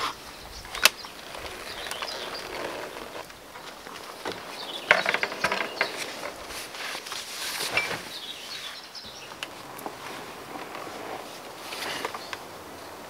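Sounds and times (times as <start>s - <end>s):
clicks and rattles: 0.7s - 6.4s.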